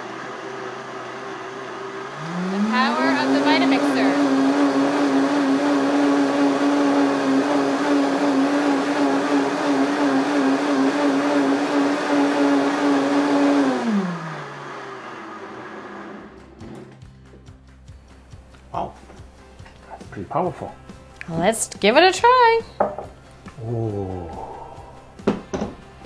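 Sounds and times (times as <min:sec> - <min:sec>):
blender whirring: 0:00.0 - 0:16.9.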